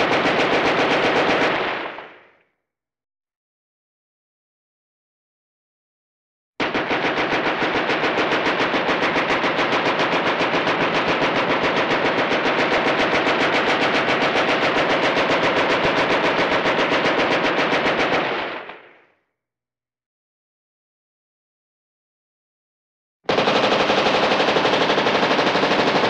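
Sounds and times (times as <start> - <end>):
machine gun firing: 0.0 - 2.4, 6.6 - 19.0, 23.3 - 26.0.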